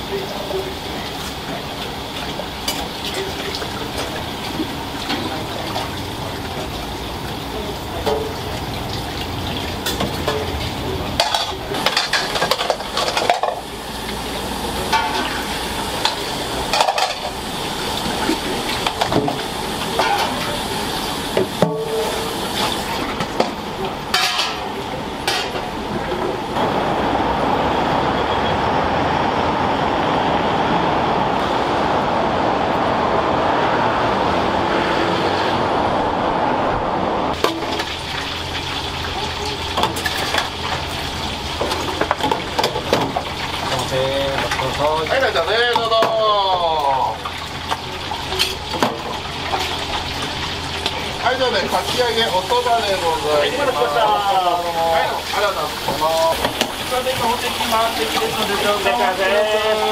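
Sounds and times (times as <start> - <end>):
kitchenware clinking and knocking: 9.8 - 13.7, 16.1 - 17.4, 23.2 - 25.7.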